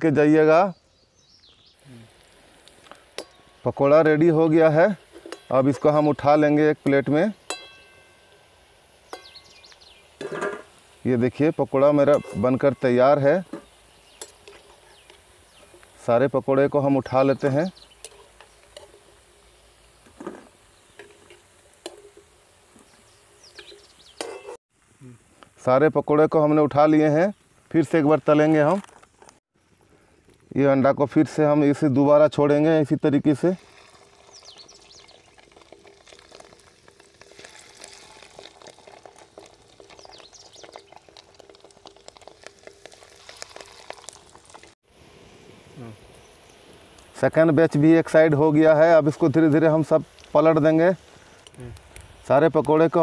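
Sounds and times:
frying oil sizzling: 1.8s - 27.9s, 29.7s - 53.0s
metal skimmer clinking on pan: 7.4s - 8.4s, 12.0s - 12.9s.

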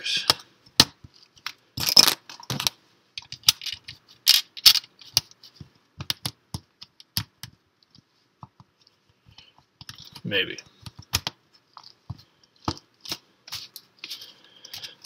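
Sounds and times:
plastic pieces clicking: 1.4s - 5.3s.

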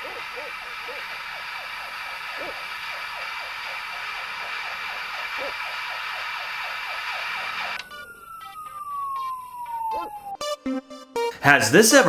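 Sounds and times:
television static hiss: 0.0s - 7.8s
long falling tone: 3.9s - 11.4s.

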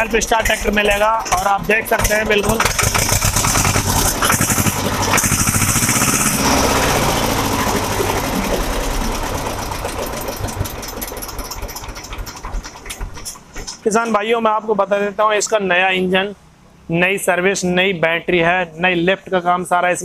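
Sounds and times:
diesel tractor engine knocking: 0.0s - 14.3s.

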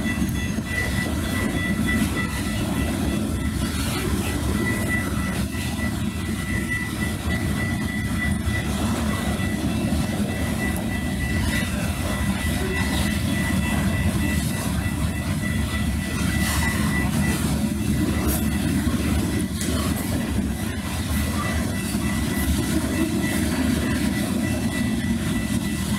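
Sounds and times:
freight train cars rumbling past: 0.0s - 25.9s.

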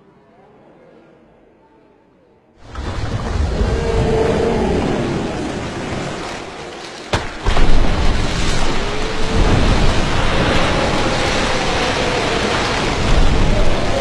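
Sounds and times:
falling spray and splashing: 2.6s - 14.0s
whale crashing into water: 2.6s - 14.0s
sharp crack: 6.4s - 14.0s.

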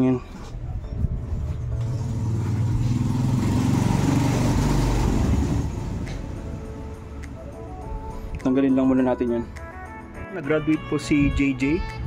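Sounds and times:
vehicle driving past: 1.1s - 7.8s.

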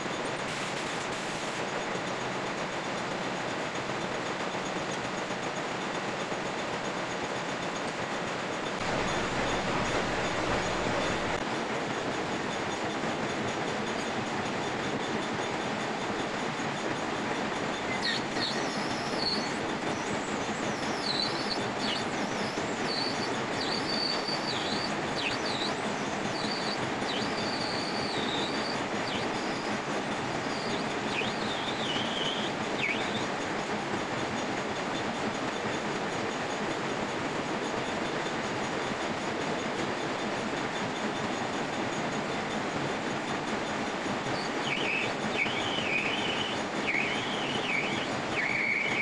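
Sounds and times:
lathe machining: 0.0s - 49.0s
high wavering squeal: 8.6s - 11.5s, 12.5s - 33.7s, 43.2s - 49.0s.

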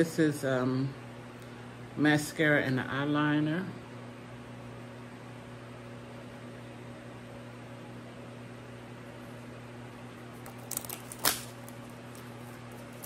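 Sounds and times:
steady electrical hum: 0.0s - 13.0s
plastic packaging clicks and crackle: 10.4s - 13.0s.

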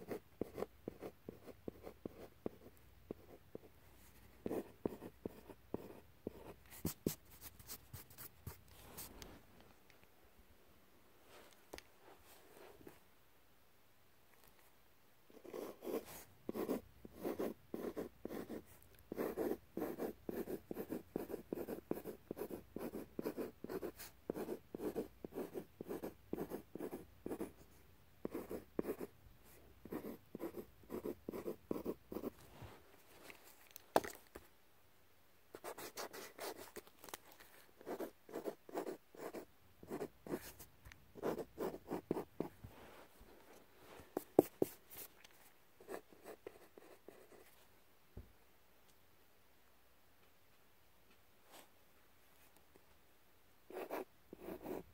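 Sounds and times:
pencil scratching on paper: 0.0s - 3.7s, 4.4s - 9.1s, 15.4s - 27.6s, 28.2s - 29.1s, 29.8s - 32.3s, 35.6s - 36.7s, 37.8s - 40.6s, 41.2s - 42.5s, 53.7s - 54.8s.

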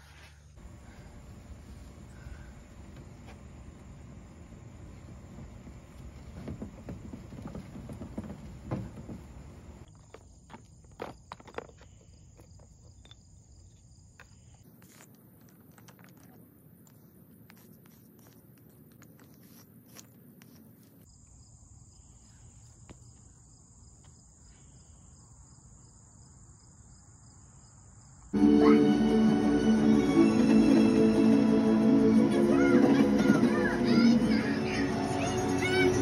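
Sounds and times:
chalk scraping on asphalt: 16.0s - 21.1s
loud music: 28.4s - 36.0s.

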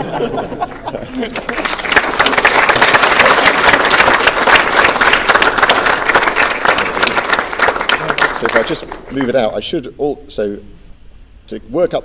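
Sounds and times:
audience applauding: 0.4s - 9.4s.

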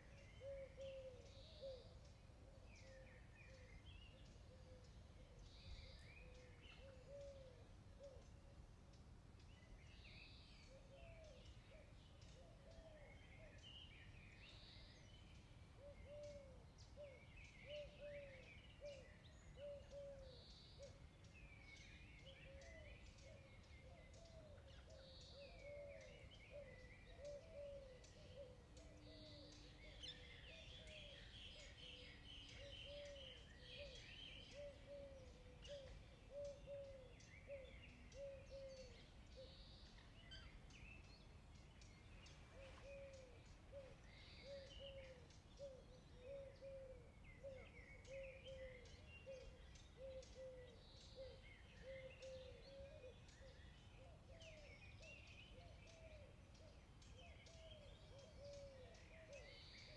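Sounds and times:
birds chirping: 13.1s - 59.9s.

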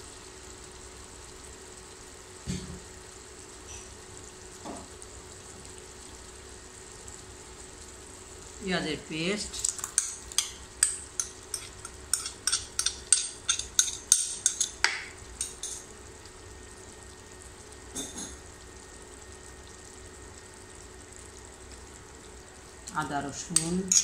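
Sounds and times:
onions sizzling in oil: 0.0s - 24.0s
spoon clinking on bowl: 9.8s - 15.8s, 23.6s - 24.0s.

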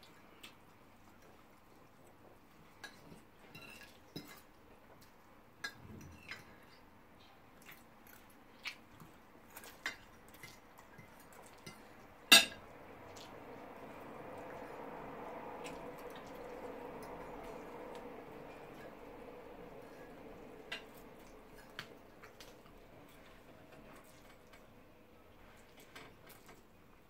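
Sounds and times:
metal fork clinking on a plate: 9.6s - 12.6s.

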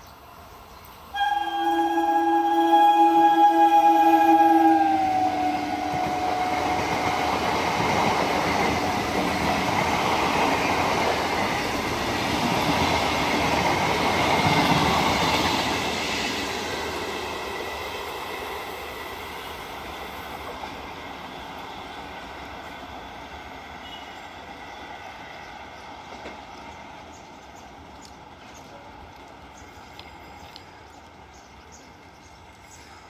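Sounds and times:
train wheels rushing on rail: 0.1s - 33.0s
train horn: 1.1s - 7.7s, 23.8s - 24.4s.

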